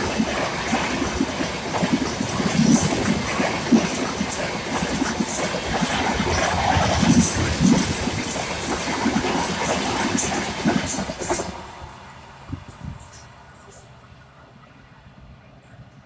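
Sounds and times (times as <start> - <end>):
train passing at speed: 0.0 - 16.0.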